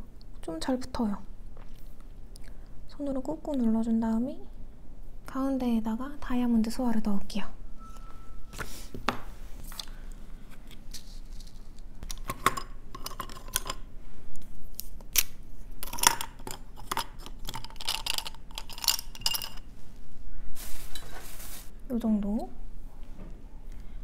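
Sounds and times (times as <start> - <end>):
small tools clicking and clinking: 12.1 - 13.8, 15.8 - 19.7.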